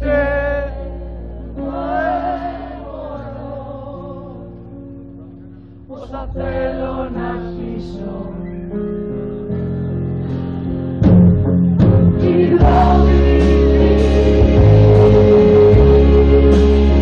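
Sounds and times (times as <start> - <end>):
drum hits: 11.0 - 17.0
live band playing: 11.0 - 17.0
woman singing: 12.2 - 13.5.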